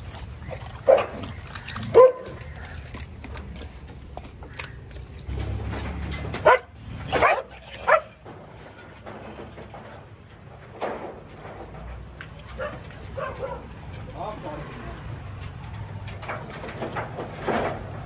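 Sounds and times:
dog barking: 0:00.8 - 0:01.2, 0:01.9 - 0:02.4, 0:06.4 - 0:08.1, 0:12.6 - 0:13.7.

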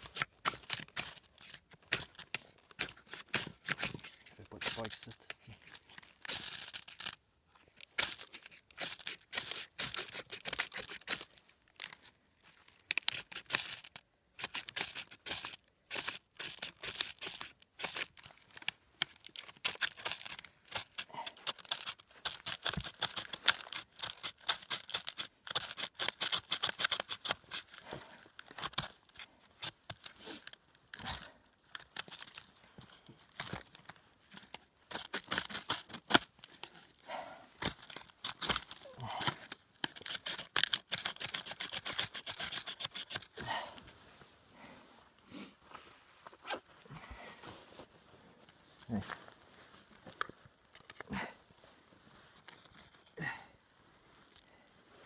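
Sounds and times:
knife scraping ferro rod: 0:19.6 - 0:27.8, 0:37.6 - 0:43.4.

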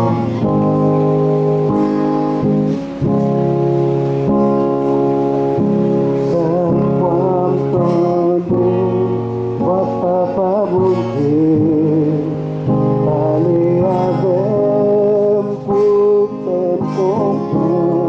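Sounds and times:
man singing with vibrato: 0:00.0 - 0:01.1, 0:05.9 - 0:18.0
held instrumental chords: 0:00.0 - 0:18.0.

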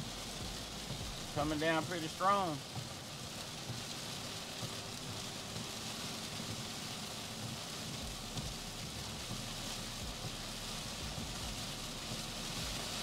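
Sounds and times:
heavy rain on a vehicle roof: 0:00.0 - 0:13.0.

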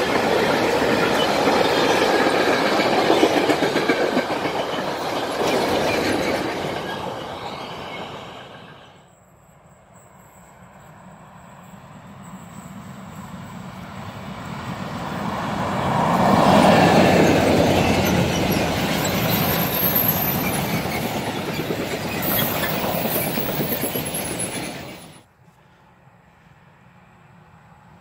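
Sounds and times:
freight train passing: 0:00.0 - 0:28.0
high wheel squeals: 0:16.5 - 0:25.3.

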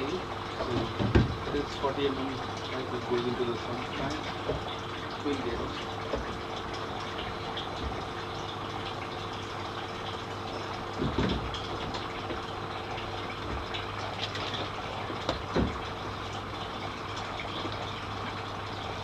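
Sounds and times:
pipe knocking into fitting: 0:11.0 - 0:11.6.

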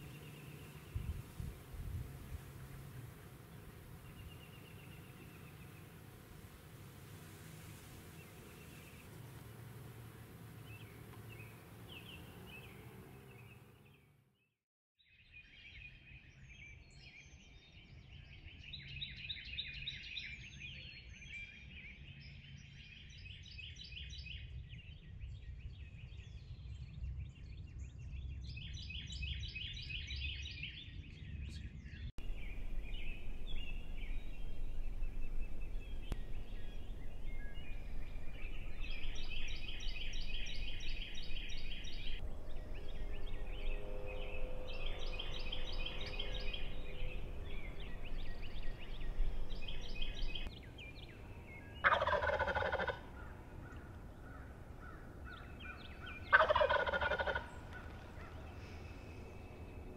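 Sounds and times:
songbirds chirping and trilling: 0:00.0 - 0:14.2, 0:15.1 - 0:59.9
steady low rumble: 0:32.1 - 0:56.4.

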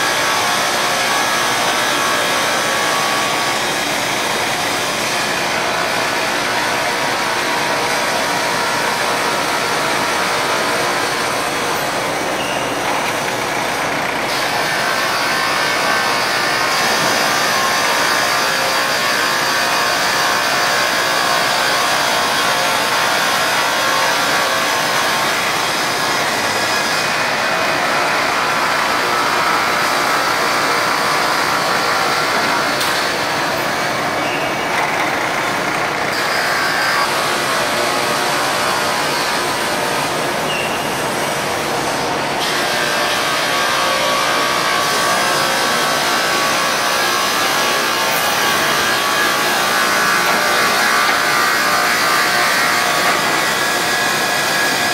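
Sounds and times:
sanding machine and conveyor running: 0:00.0 - 0:54.9.

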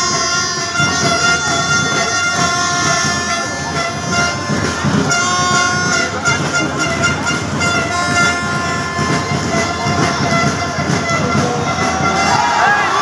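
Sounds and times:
crowd noise: 0:00.0 - 0:13.0
horns blowing: 0:00.0 - 0:13.0.

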